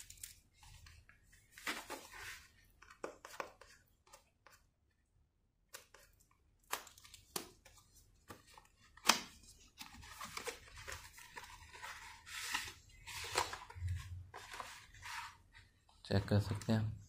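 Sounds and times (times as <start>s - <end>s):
paper rustling and scraping: 0.0s - 3.7s, 9.4s - 15.8s.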